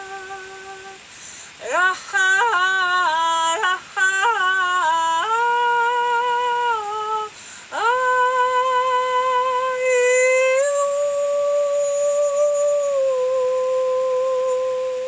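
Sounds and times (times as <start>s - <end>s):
woman singing wordless tones: 0.0s - 15.0s.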